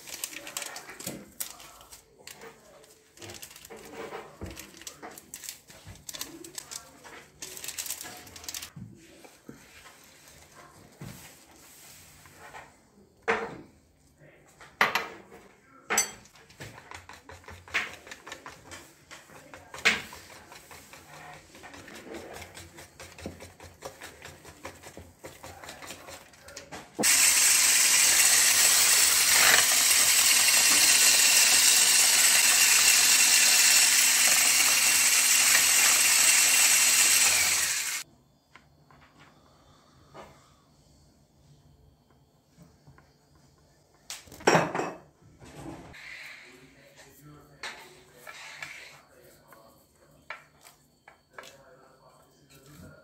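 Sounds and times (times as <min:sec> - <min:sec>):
electric hand mixer running: 0:27.0 - 0:38.0.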